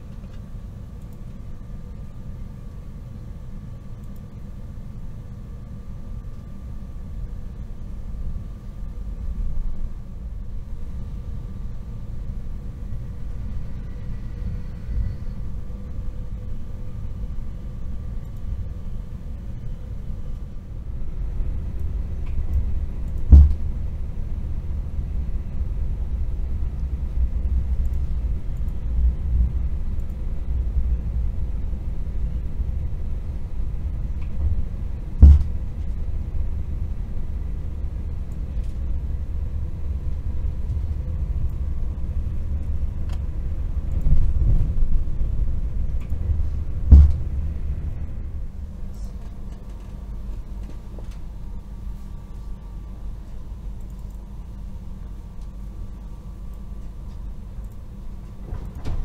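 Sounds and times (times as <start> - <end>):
train low rumble: 0.0 - 59.0
loud bang: 46.9 - 47.4.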